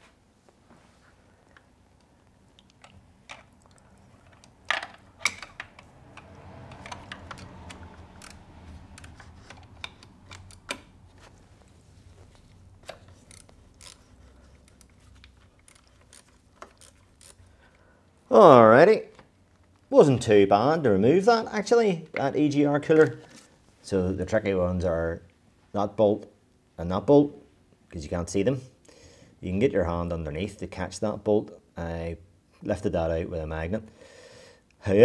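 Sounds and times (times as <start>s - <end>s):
hand ratchet clicking: 5.2s - 10.9s, 12.9s - 17.5s.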